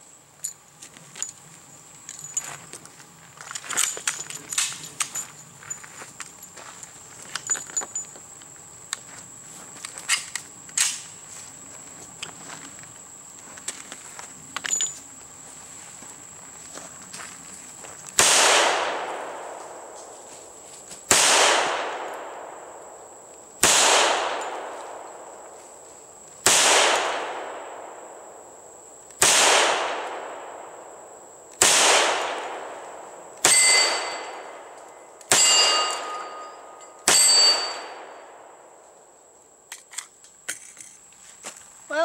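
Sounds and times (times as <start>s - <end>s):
pistol shots with echo: 18.2s - 20.0s, 21.1s - 22.9s, 23.6s - 25.0s, 26.4s - 28.2s, 29.2s - 30.8s, 31.6s - 38.7s.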